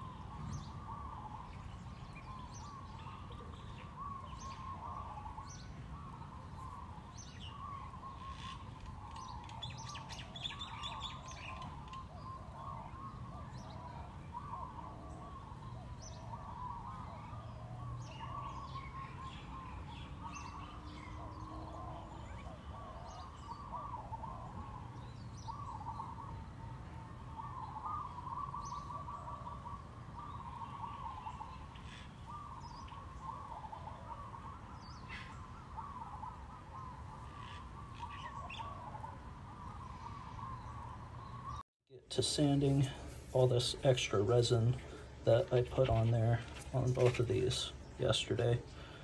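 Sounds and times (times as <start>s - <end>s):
songbirds chirping: 0.0s - 49.0s.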